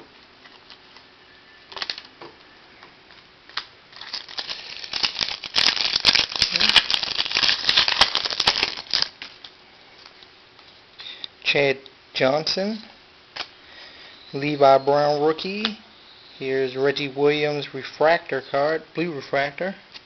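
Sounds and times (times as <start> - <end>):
foil wrapper crinkling: 1.7 - 2.1, 3.1 - 10.2.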